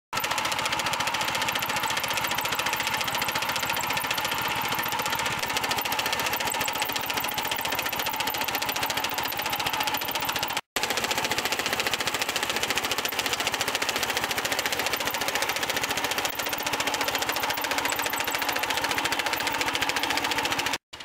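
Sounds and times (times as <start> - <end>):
small petrol engine running: 0.2 - 21.0
mower cutter bar chatter: 13.9 - 20.8.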